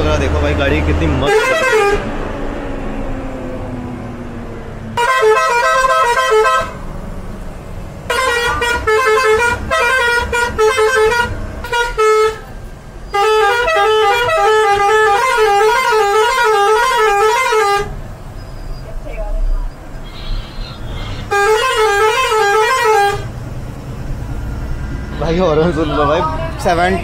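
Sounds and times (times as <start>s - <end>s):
low engine and road hum: 0.0s - 27.0s
bus musical horn melodies: 1.2s - 2.1s, 4.9s - 6.9s, 8.0s - 18.0s, 20.0s - 23.4s, 25.2s - 27.0s.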